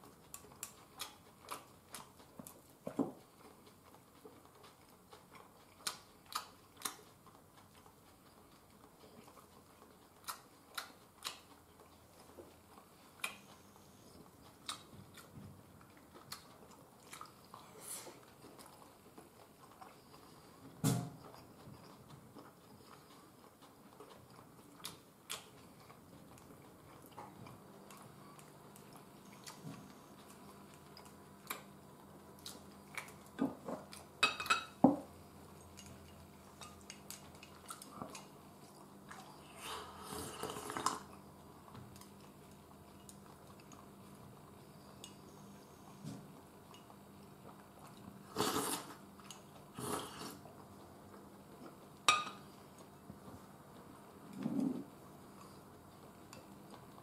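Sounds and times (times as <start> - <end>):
person chewing: 0.0 - 57.0
person slurping soup: 39.5 - 41.1, 48.3 - 49.0, 49.8 - 50.4.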